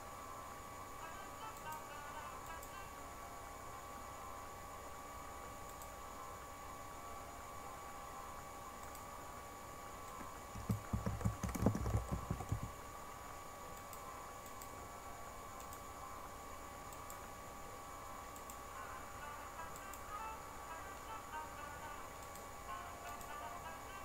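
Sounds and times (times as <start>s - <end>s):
faint hum and hiss: 0.0s - 24.0s
typing on computer keyboard: 10.5s - 12.7s.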